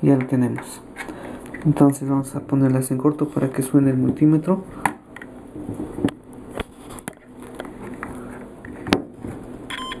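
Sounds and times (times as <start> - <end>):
faint hum: 0.0 - 10.0
multimeter continuity beep: 9.7 - 10.0.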